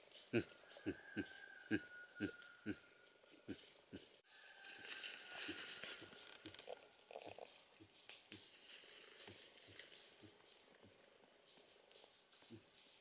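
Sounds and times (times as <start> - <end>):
leaves and ferns rustling: 0.0 - 13.0.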